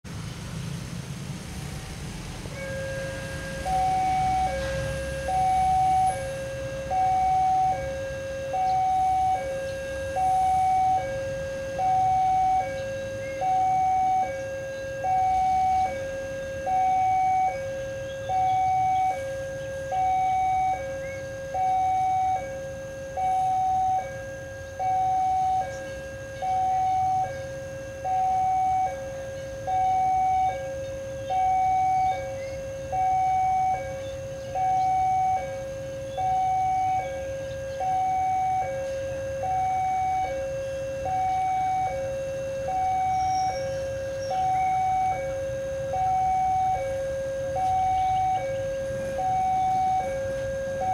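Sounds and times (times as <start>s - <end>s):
level crossing two-tone alarm: 2.5s - 50.9s.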